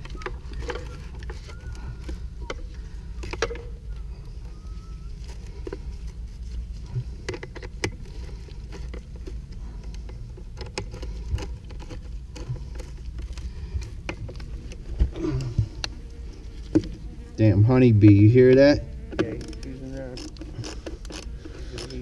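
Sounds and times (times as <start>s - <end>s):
hands handling pipe coupling: 0.0s - 3.8s.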